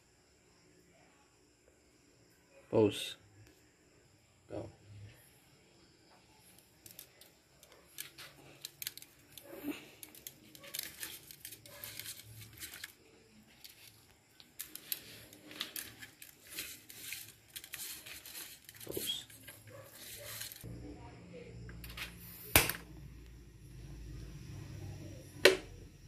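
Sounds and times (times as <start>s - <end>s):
crisp clicks: 6.8s - 13.0s
crinkling and rustling: 6.8s - 20.7s.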